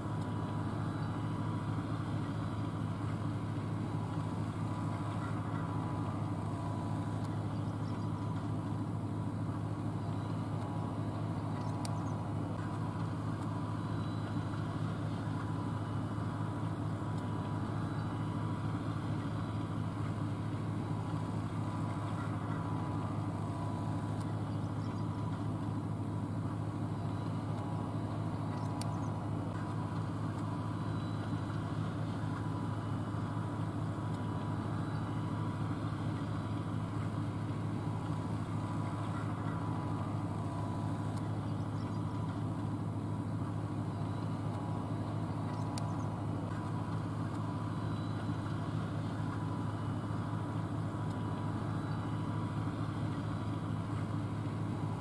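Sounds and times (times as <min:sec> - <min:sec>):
tractor diesel engine drone: 0:00.0 - 0:55.0.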